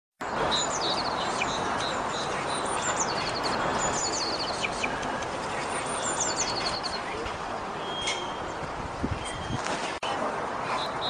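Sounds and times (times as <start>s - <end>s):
songbirds singing: 0.2s - 11.0s
steady rushing noise: 0.2s - 11.0s
single bird chirps: 7.8s - 8.6s.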